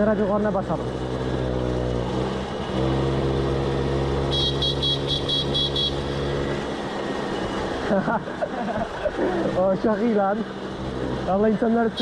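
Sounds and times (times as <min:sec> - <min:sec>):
moped horn blasts: 0:04.2 - 0:06.1.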